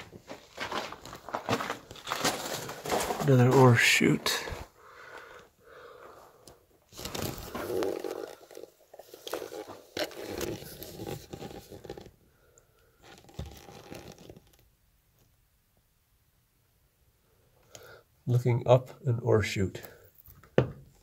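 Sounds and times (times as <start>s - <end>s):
footsteps on gravel and rock: 0.0s - 4.7s.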